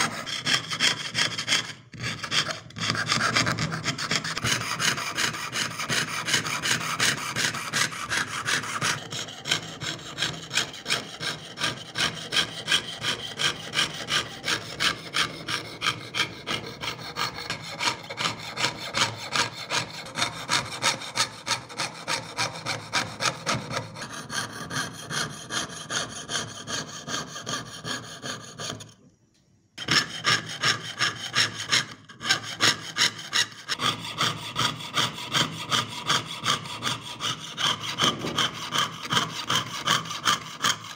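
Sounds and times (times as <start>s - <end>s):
saw cutting thin metal: 0.0s - 28.9s, 29.8s - 40.9s.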